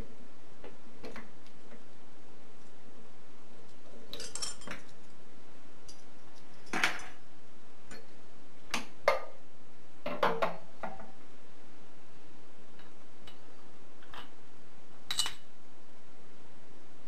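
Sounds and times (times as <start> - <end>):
steel parts clinking against metal: 4.1 - 4.9.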